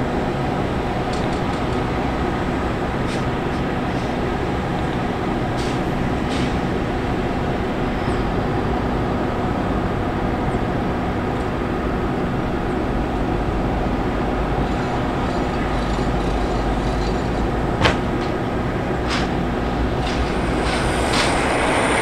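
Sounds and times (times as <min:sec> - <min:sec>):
loud machinery drone: 0:00.0 - 0:22.0
sharp metal clank: 0:17.8 - 0:18.4.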